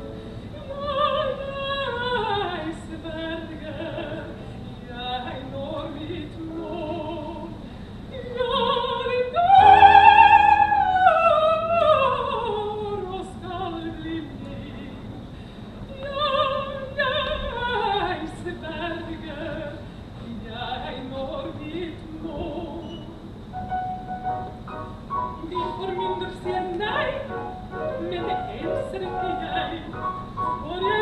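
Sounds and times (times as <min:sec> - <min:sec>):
operatic singing with vibrato: 0:08.2 - 0:14.8, 0:25.3 - 0:31.0.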